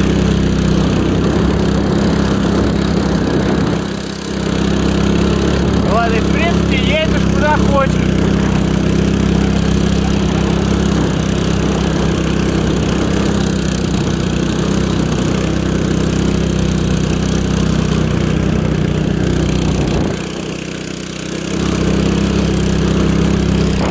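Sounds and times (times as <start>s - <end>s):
small engine running: 0.0s - 23.9s.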